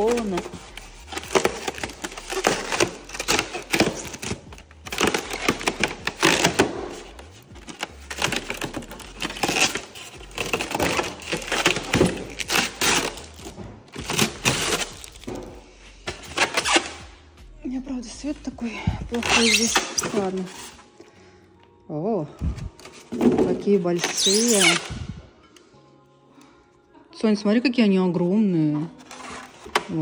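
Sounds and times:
polystyrene foam crackling: 0:00.0 - 0:15.4.

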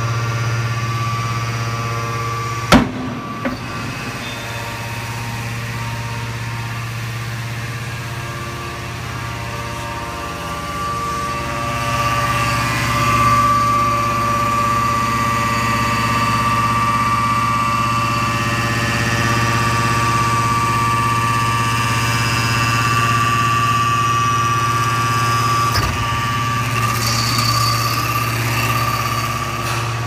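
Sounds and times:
hydraulic power unit humming: 0:00.0 - 0:30.0
sharp metal clank: 0:02.7 - 0:04.8.

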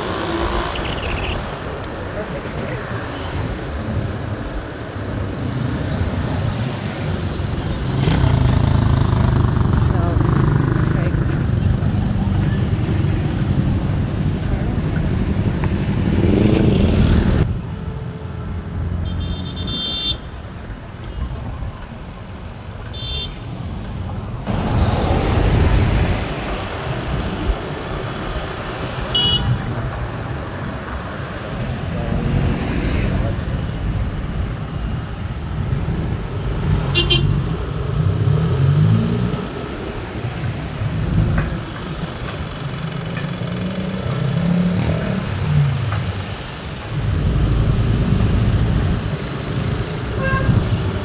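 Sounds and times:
passing cars: 0:00.0 - 0:51.0
motorcycle engine: 0:07.4 - 0:13.2.

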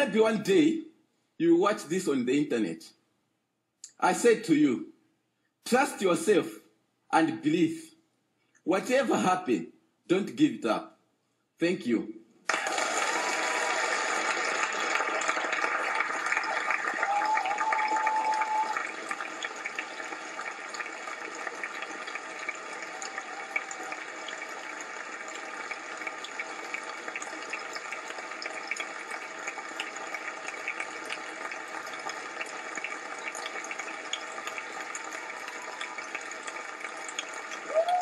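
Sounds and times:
large audience applauding: 0:12.5 - 0:38.0.

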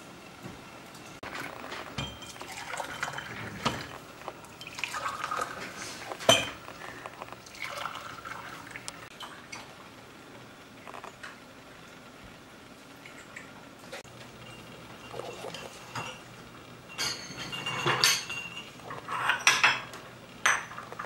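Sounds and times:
water pouring into glasses: 0:01.2 - 0:09.6
glass clinks: 0:02.0 - 0:03.4, 0:06.3 - 0:06.6, 0:16.9 - 0:18.8.

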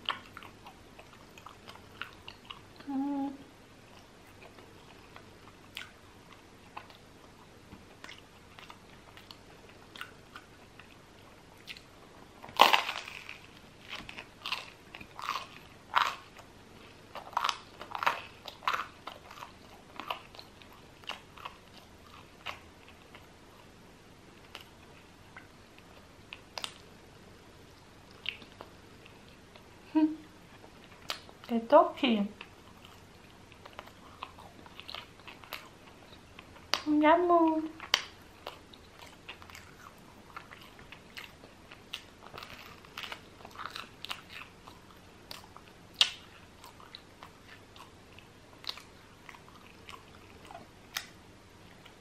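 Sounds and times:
crunchy chewing: 0:00.0 - 0:02.8, 0:03.9 - 0:23.7, 0:32.4 - 0:36.9, 0:37.8 - 0:52.0
crunchy bread bite: 0:11.6 - 0:16.5.

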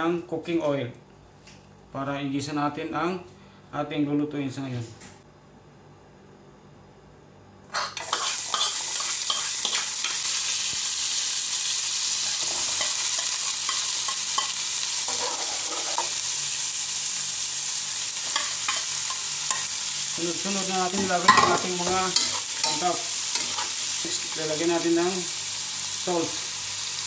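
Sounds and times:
garlic and onions sizzling in oil: 0:07.7 - 0:27.0
spoon stirring in pan: 0:07.9 - 0:10.3, 0:12.4 - 0:16.2, 0:18.2 - 0:19.7, 0:20.8 - 0:24.0.

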